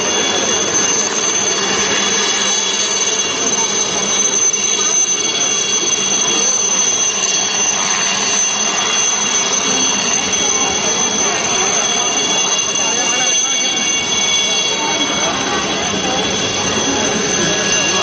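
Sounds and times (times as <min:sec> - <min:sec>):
helicopter engine whine: 0:00.0 - 0:18.0.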